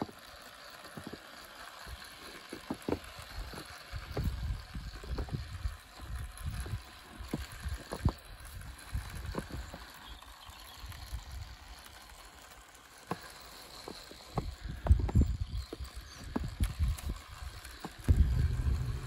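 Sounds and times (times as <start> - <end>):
model rail truck running on track: 0.0 - 19.0
wheels clicking at rail joints: 0.0 - 19.0
wind rumbling on microphone: 3.4 - 9.8, 14.4 - 19.0.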